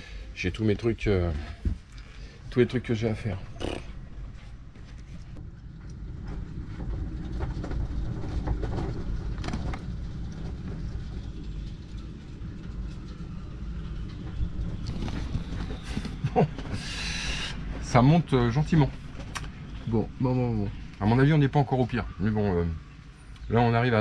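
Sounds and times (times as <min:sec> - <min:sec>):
storm wind buffeting a boat: 0:05.4 - 0:16.7.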